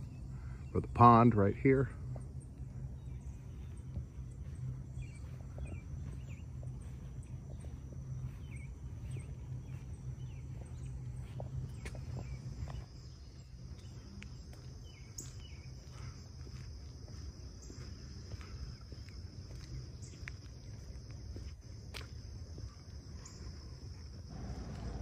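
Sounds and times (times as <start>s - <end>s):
insects trilling: 0.0s - 25.0s
wind rumble on microphone: 2.0s - 14.1s.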